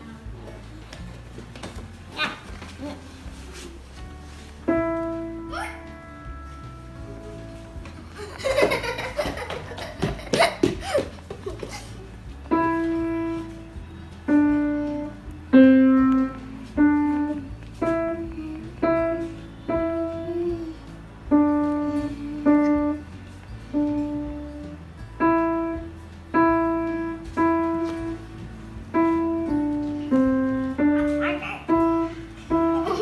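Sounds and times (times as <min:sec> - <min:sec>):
slow piano melody: 0:01.2 - 0:10.9, 0:12.0 - 0:33.0.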